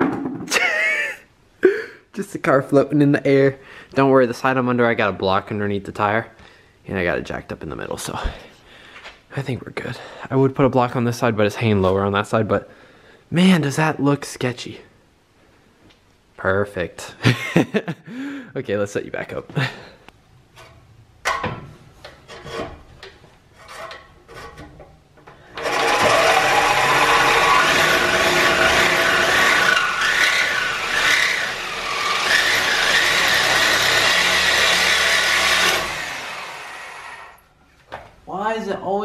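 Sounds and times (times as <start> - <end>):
reciprocating saw cutting metal pipe: 25.6 - 37.4.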